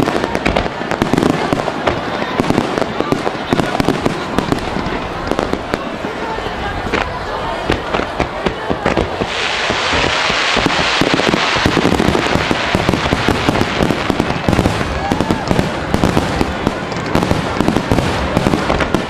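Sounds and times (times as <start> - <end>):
fireworks bursting: 0.0 - 19.0
fireworks hiss: 6.8 - 19.0.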